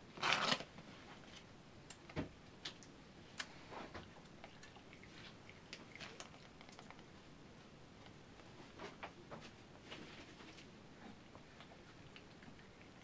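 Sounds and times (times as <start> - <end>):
paper envelope crinkling: 0.2 - 0.7.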